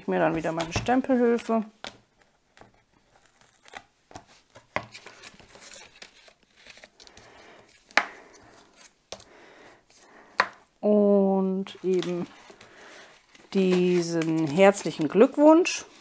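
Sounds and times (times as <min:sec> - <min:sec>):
paper card sliding and rustling: 0:02.5 - 0:09.3, 0:11.8 - 0:15.1.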